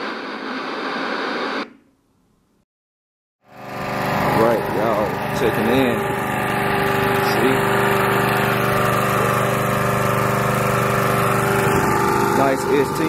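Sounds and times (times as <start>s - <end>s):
generator engine running: 3.5s - 13.0s.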